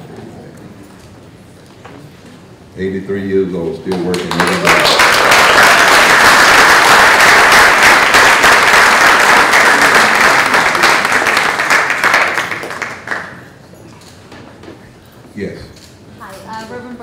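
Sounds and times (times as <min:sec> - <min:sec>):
audience applause: 0:03.9 - 0:13.5.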